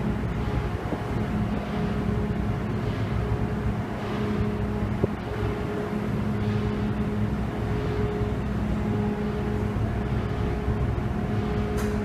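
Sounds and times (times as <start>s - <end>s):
ship diesel engines droning: 0.0s - 12.0s.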